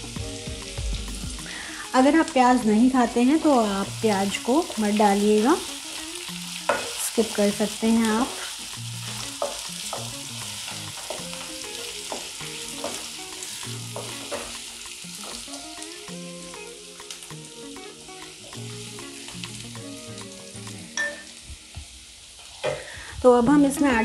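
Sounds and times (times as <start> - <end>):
potatoes sizzling in hot oil: 0.0 - 24.0
spatula scraping and tapping pan: 6.6 - 7.0, 13.9 - 14.6.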